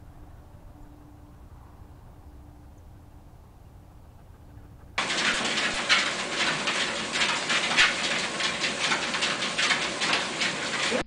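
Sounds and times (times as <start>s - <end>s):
treadmill belt and motor rushing: 4.3s - 11.0s.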